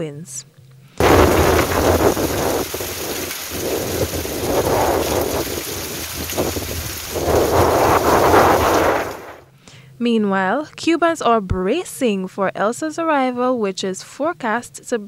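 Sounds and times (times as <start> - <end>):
heavy rain and wind rushing: 1.0 - 9.4
low rumble: 1.0 - 9.4.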